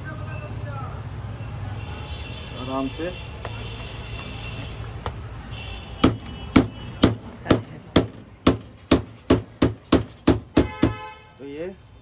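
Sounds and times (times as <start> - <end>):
sharp metal knocks: 6.0 - 11.1.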